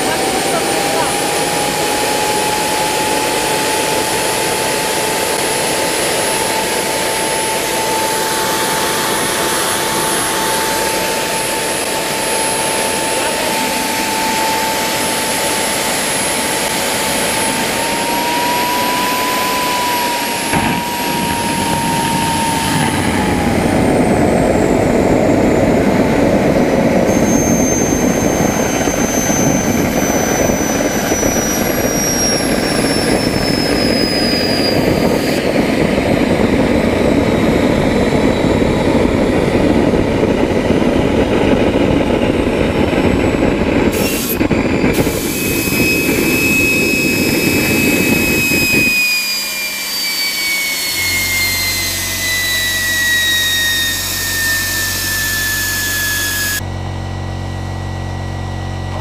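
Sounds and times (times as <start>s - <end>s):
high turbine whine: 0.0s - 59.0s
jet engine roar: 0.0s - 59.0s.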